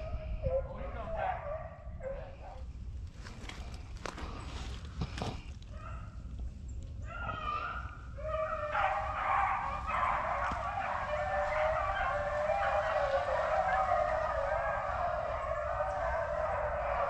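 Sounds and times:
dogs baying in chorus: 0.0s - 2.7s, 7.0s - 17.0s.

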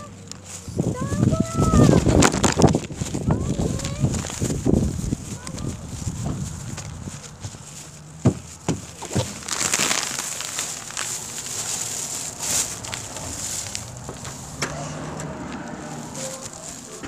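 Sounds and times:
rustling and crinkling: 0.0s - 17.0s
footsteps on wooden steps: 6.2s - 9.6s, 13.0s - 17.0s.

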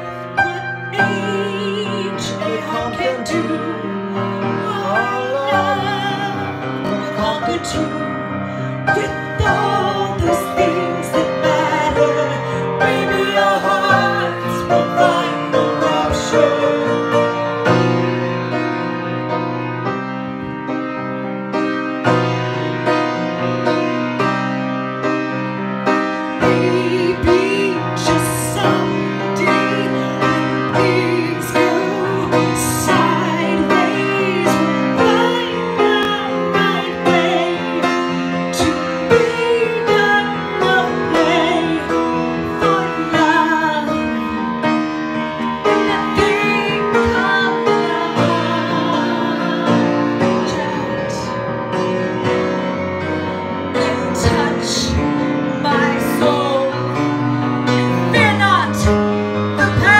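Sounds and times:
grand piano chords: 0.0s - 59.9s
woman singing: 0.4s - 17.3s, 26.4s - 44.6s, 45.4s - 51.4s, 53.7s - 57.2s, 57.8s - 59.9s.

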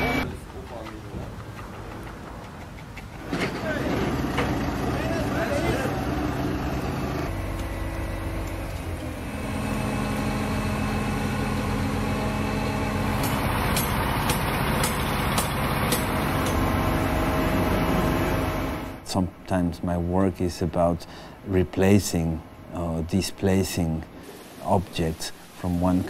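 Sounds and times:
diesel engine running: 0.0s - 0.2s, 3.2s - 19.0s.

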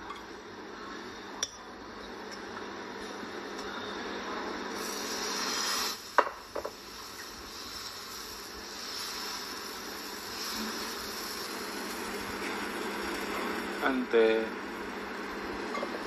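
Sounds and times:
batter sizzling: 4.7s - 16.0s
metal spatula scraping a griddle: 10.4s - 13.5s.

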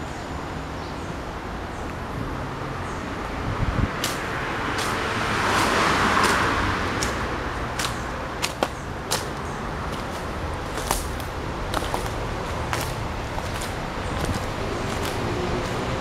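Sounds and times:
background rush of noise: 0.0s - 16.0s
footsteps on dry leaves and twigs: 4.0s - 16.0s.

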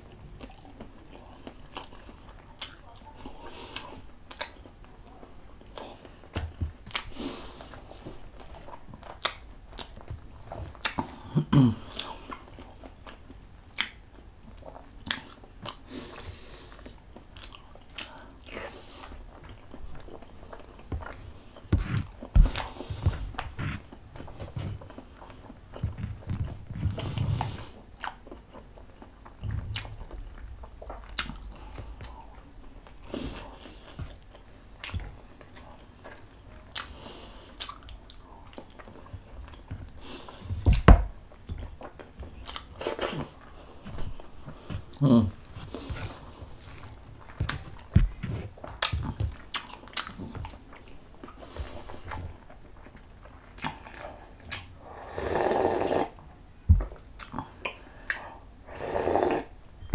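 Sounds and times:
person chewing food: 0.0s - 59.9s
wet mouth clicks and smacks: 13.1s - 14.0s.

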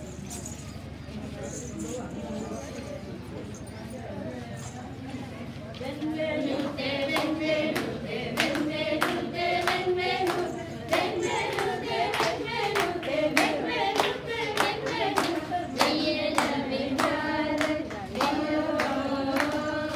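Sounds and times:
nuns singing together: 5.8s - 19.9s
hands clapping in time: 6.6s - 19.9s.

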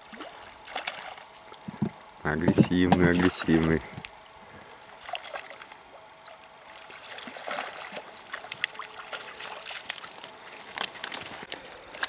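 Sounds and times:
small water splashes: 0.0s - 1.9s, 2.7s - 4.2s, 4.8s - 11.4s
river water running over stones: 6.6s - 12.0s.

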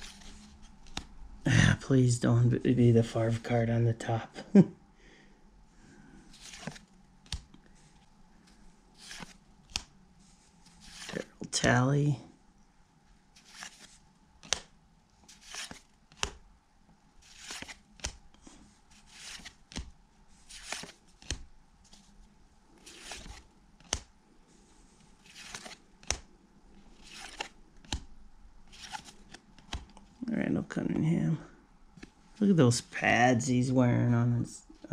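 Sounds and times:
cards swishing: 0.0s - 1.1s, 6.3s - 7.5s, 9.0s - 11.8s, 13.4s - 16.4s, 17.2s - 18.2s, 18.9s - 22.1s, 22.8s - 24.1s, 25.1s - 26.2s, 26.9s - 28.1s, 28.7s - 30.0s
card snapping: 13.5s - 14.7s.

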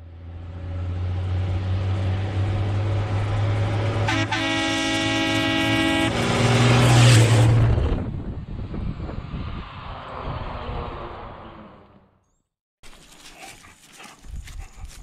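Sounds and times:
diesel truck driving past: 0.0s - 12.2s
truck horn: 3.9s - 7.1s.

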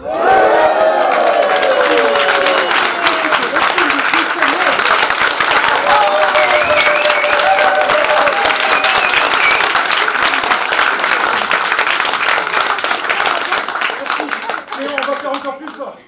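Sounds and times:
voices cheering: 0.0s - 11.2s
audience applauding: 0.0s - 16.0s.

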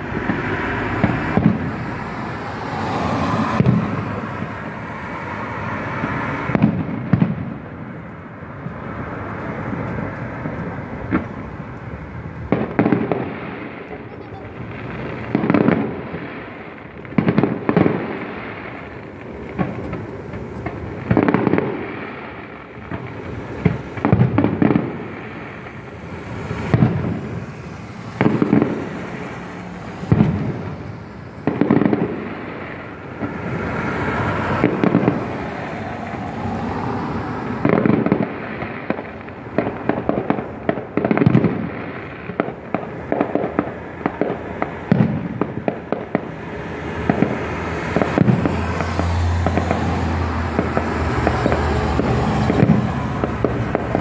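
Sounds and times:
fireworks bursting with echo: 0.0s - 54.0s
crackling pops: 9.8s - 46.4s.

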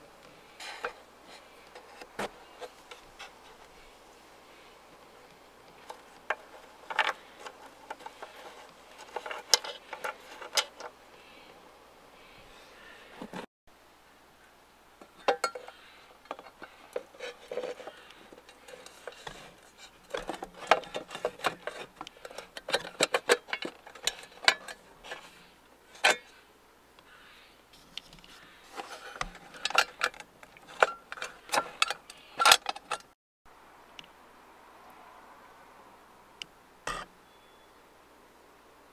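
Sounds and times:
headlight housing clattering: 5.8s - 10.9s, 15.0s - 26.3s, 28.8s - 33.1s.

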